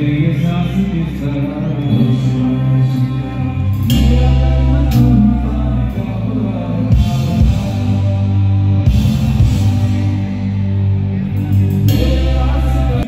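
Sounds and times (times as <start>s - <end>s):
amplified band with heavy bass: 0.0s - 13.0s
man singing into microphone: 0.0s - 13.0s.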